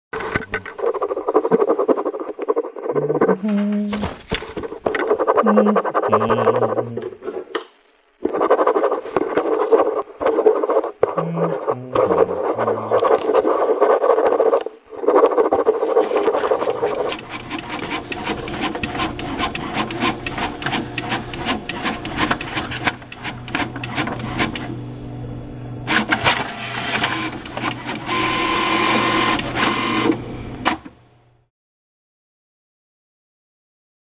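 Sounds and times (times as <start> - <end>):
marker pen scratching on paper: 0.7 - 3.4, 4.1 - 7.5, 8.2 - 24.6, 27.2 - 30.0
printer clicking and whirring: 16.4 - 24.8, 25.9 - 31.0
printer hum: 16.4 - 30.9
printer whine: 16.6 - 24.9, 25.8 - 30.9.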